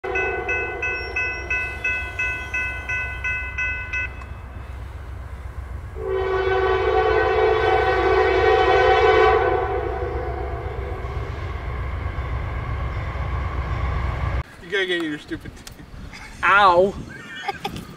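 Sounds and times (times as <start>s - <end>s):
locomotive horn blast: 0.0s - 3.2s, 6.0s - 14.4s
railroad crossing bell ringing: 0.0s - 4.8s.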